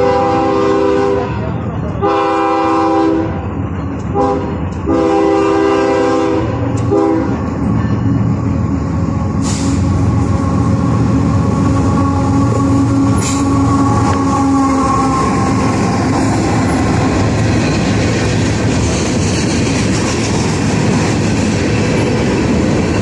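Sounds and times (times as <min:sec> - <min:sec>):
locomotive air horn blasts: 0:00.0 - 0:03.4, 0:04.1 - 0:07.4, 0:11.7 - 0:15.9
locomotive diesel engine: 0:00.0 - 0:23.0
train rolling: 0:00.0 - 0:23.0.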